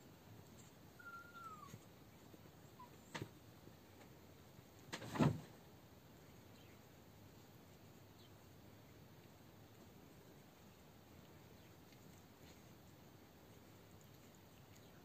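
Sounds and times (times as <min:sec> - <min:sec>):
faint high squeak: 0:01.0 - 0:01.8.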